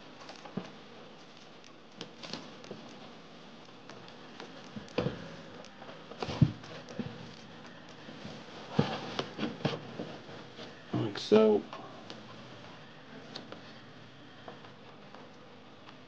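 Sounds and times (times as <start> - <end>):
footsteps on floor: 4.4 - 10.8.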